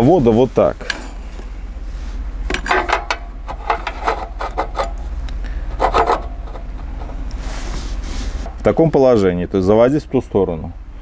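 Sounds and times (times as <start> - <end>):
recoil starter scraping and clicking: 2.4 - 8.8.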